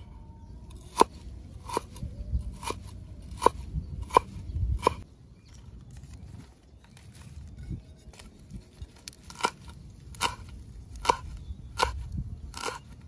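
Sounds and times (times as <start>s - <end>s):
cleaver chopping on wooden board: 2.6s - 5.0s.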